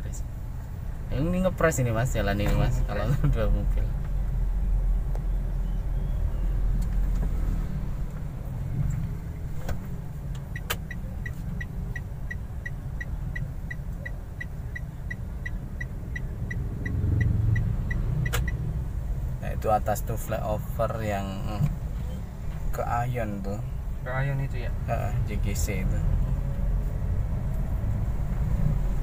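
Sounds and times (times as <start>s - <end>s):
car engine and road rumble: 0.0s - 29.0s
turn signal ticking: 8.0s - 19.4s.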